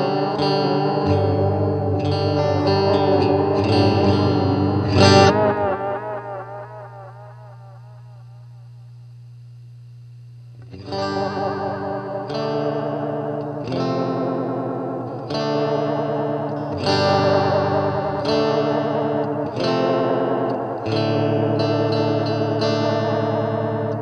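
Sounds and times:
electric guitar chords with delay: 0:00.0 - 0:09.8, 0:10.4 - 0:24.0
amplifier low hum: 0:00.8 - 0:15.2.

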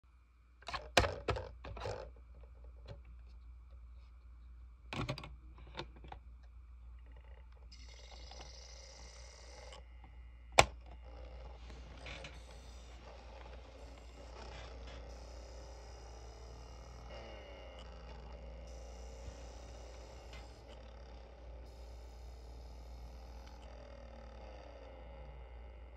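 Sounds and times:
disc and player clicking and rattling: 0:00.6 - 0:02.1, 0:05.0 - 0:06.2, 0:10.6 - 0:23.8
disc player whirring: 0:04.9 - 0:25.9.

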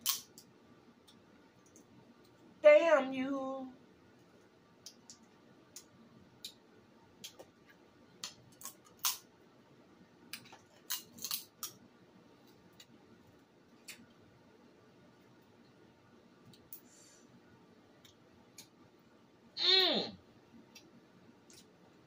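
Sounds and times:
shellfish shells cracking: 0:00.0 - 0:00.4, 0:08.2 - 0:09.2, 0:10.4 - 0:11.8.

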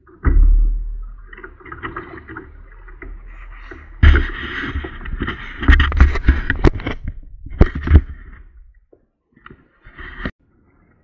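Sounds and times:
kayak hull scraping and knocking: 0:00.0 - 0:08.8, 0:09.5 - 0:10.4.

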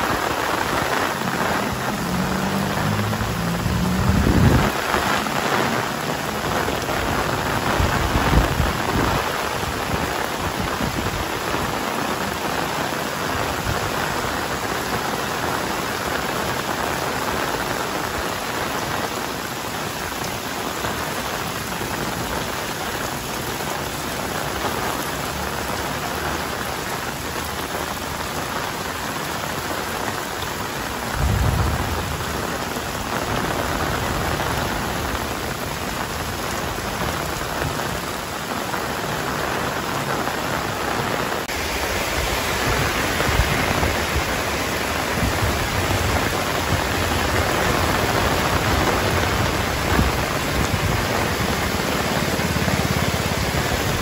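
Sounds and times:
heavy rain falling: 0:00.0 - 0:54.0
low rumble: 0:31.1 - 0:32.7.

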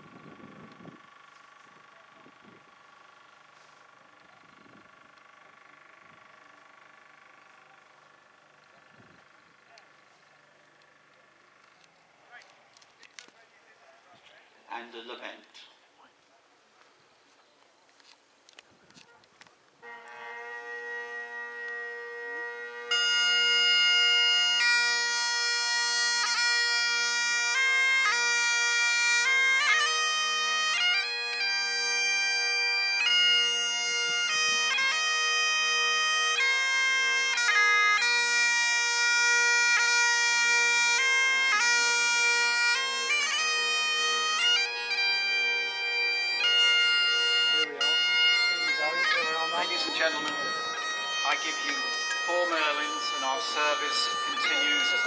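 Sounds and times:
bagpipe drones humming: 0:00.0 - 0:13.8, 0:19.7 - 0:55.0
bagpipe chanter melody: 0:19.8 - 0:55.0.

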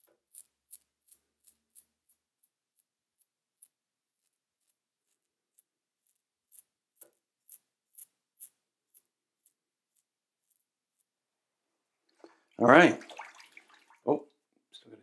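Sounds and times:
razor scraping stubble: 0:00.0 - 0:11.2.

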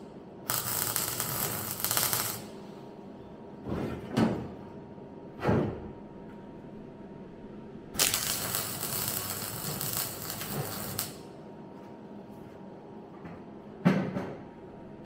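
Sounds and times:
welder crackling hiss: 0:00.5 - 0:02.5, 0:08.0 - 0:11.2.

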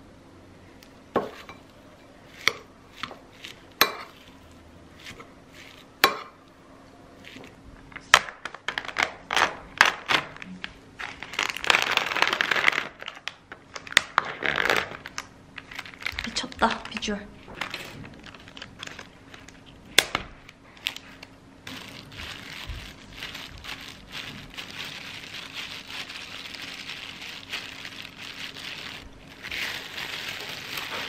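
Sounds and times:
cling film crinkling: 0:08.2 - 0:19.8, 0:20.4 - 0:31.0.

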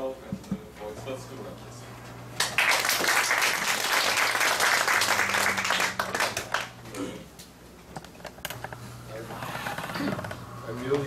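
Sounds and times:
audience applauding: 0:02.4 - 0:06.8.

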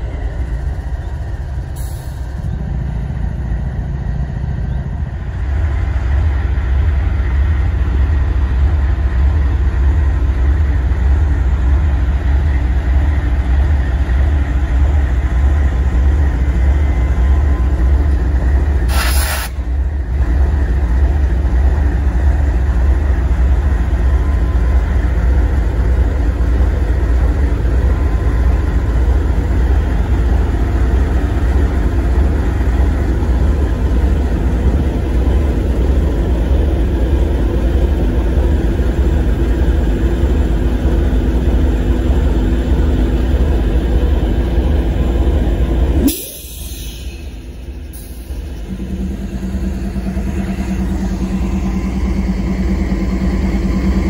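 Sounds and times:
freight train rumbling past: 0:00.0 - 0:54.0
brief hiss: 0:18.9 - 0:19.6.

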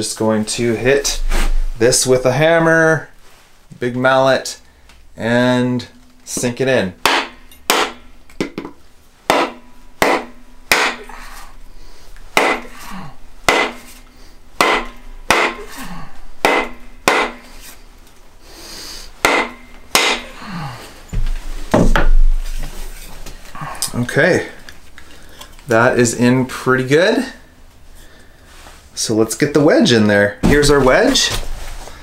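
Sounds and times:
mallet knocking wooden axe handle: 0:06.4 - 0:11.0, 0:14.6 - 0:15.6, 0:19.3 - 0:20.3.

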